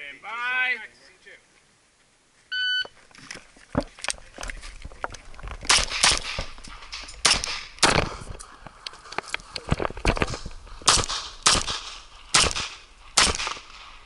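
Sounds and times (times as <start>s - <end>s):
shot timer beep: 2.5s - 2.9s
pistol firing rapid shots: 5.7s - 6.4s, 7.2s - 7.7s, 10.9s - 13.8s.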